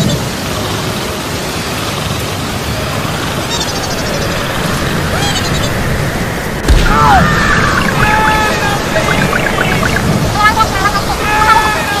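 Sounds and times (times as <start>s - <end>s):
steady rushing noise: 0.8s - 12.0s
low rumble: 2.4s - 11.4s
faint chirps: 2.8s - 11.6s.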